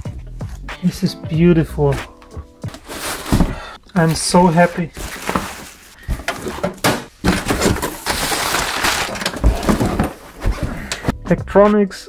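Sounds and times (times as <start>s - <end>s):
cardboard and foam rustling: 2.7s - 11.1s.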